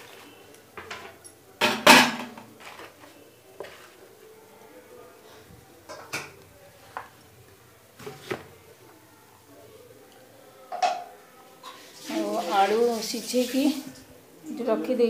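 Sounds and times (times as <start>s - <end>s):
metal pots and utensils clattering: 0.0s - 3.1s, 10.7s - 11.1s.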